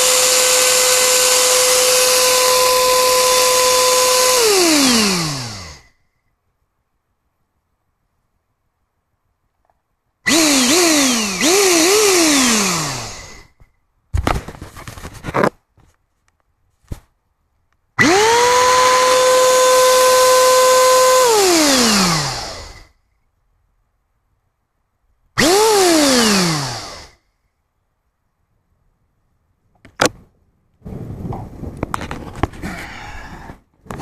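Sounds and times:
vacuum cleaner motor whining: 0.0s - 5.9s, 10.3s - 13.6s, 18.0s - 22.9s, 25.4s - 27.1s.

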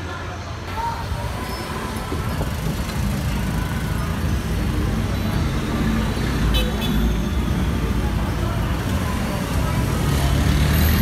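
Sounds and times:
road traffic rumble: 0.0s - 11.0s.

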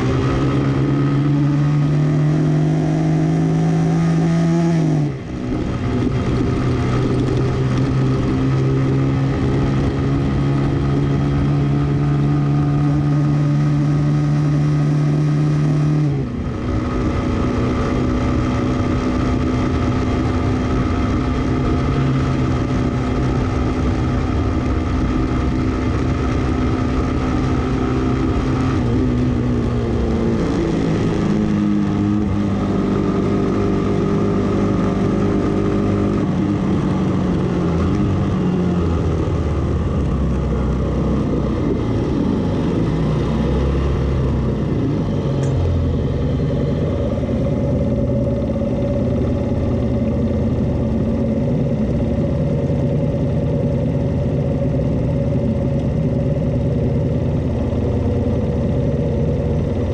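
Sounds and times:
motorcycle engine accelerating: 0.0s - 59.9s
wind rush over microphone: 5.0s - 13.2s.

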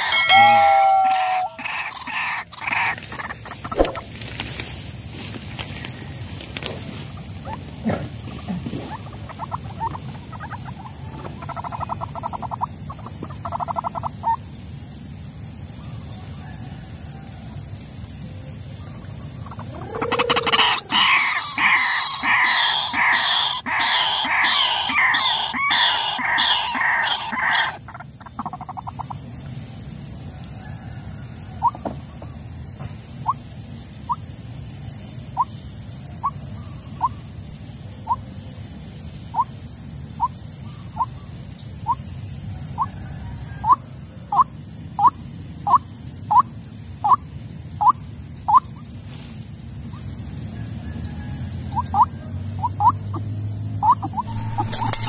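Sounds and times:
bird upward-sliding call notes: 0.0s - 1.7s, 54.1s - 55.0s
bird harsh croaking: 0.0s - 4.2s, 7.4s - 14.4s, 19.4s - 29.2s, 51.8s - 55.0s
steady high whine: 54.1s - 55.0s.

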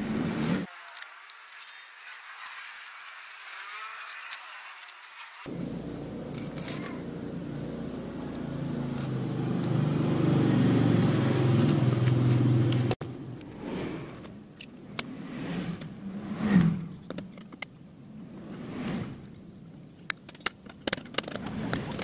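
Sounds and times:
engine running: 5.5s - 19.4s, 21.2s - 22.0s
pliers clicking and scraping metal: 6.3s - 7.0s, 8.2s - 10.0s, 11.1s - 15.1s, 15.7s - 18.6s, 19.2s - 22.0s.

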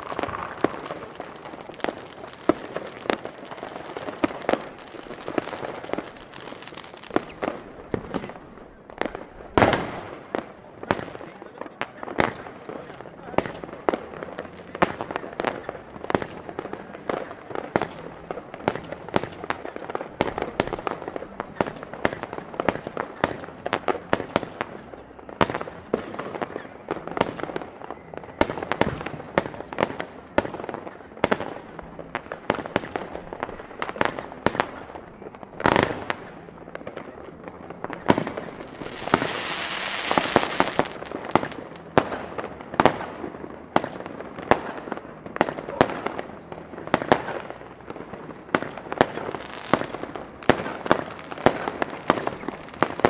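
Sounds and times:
fireworks hiss: 0.0s - 8.4s, 38.2s - 41.8s, 49.0s - 53.0s
fireworks bangs and crackles: 0.0s - 53.0s.

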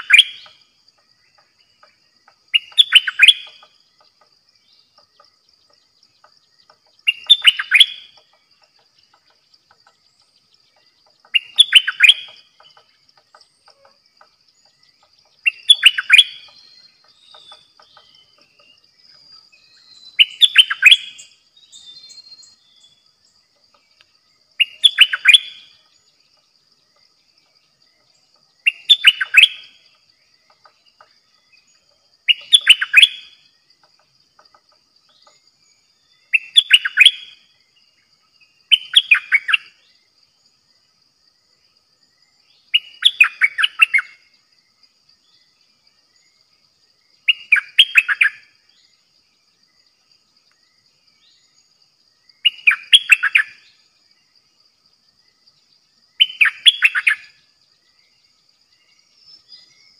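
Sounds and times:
bulbul singing: 0.0s - 40.1s, 42.3s - 44.4s, 47.1s - 49.0s, 51.1s - 53.9s, 55.7s - 59.9s.

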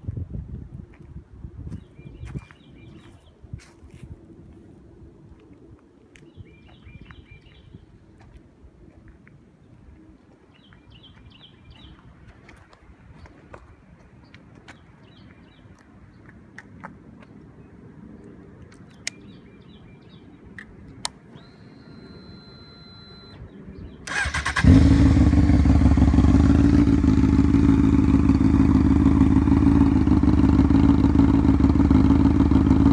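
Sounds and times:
faint high whine: 21.3s - 23.5s
motorcycle engine idling: 24.1s - 32.9s.

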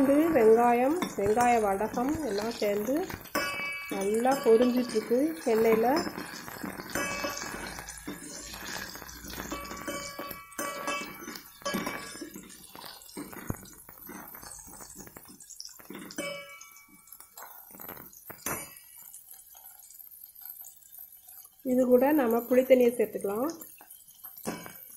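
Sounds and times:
spoon clinking against metal pot: 0.0s - 17.8s, 23.7s - 24.9s
oil sizzling: 0.0s - 24.9s.

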